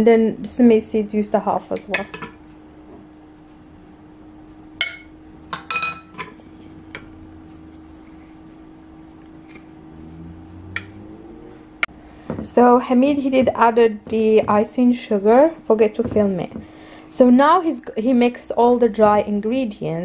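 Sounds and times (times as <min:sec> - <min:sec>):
steady low hum: 0:00.0 - 0:20.0
glass clinking against dish: 0:04.8 - 0:06.4.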